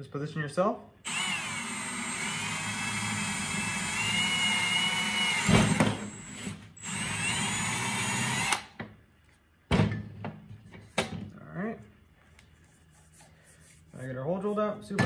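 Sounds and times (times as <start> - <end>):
drill motor whining: 1.1 - 8.7.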